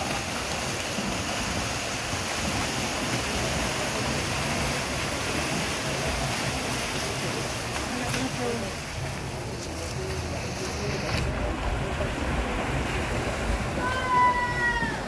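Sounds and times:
swimmers splashing in pool: 0.0 - 15.0.

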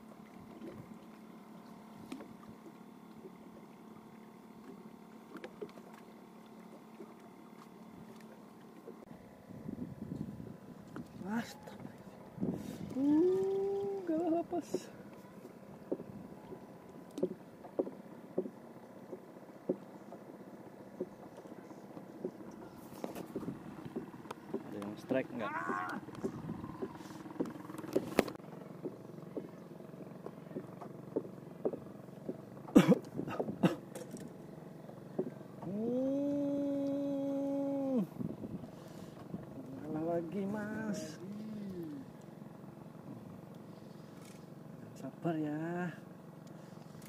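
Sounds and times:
faint boat hum: 0.0 - 47.0
soft knocks on hull: 14.6 - 20.3, 21.0 - 25.0, 25.6 - 29.6, 30.2 - 33.9, 35.1 - 35.7.

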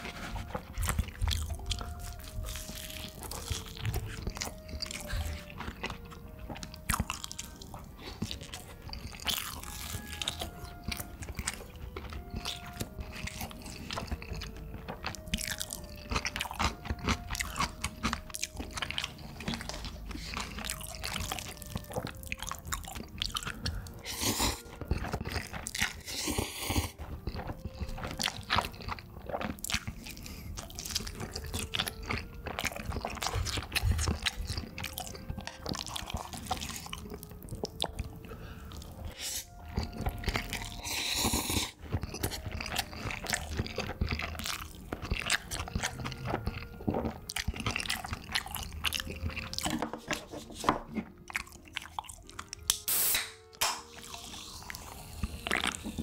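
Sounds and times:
chewing and lip smacks: 0.1 - 49.8, 51.1 - 56.0
slurping noodles: 18.8 - 50.6, 53.9 - 56.0
soda can cracked open: 52.6 - 54.0.

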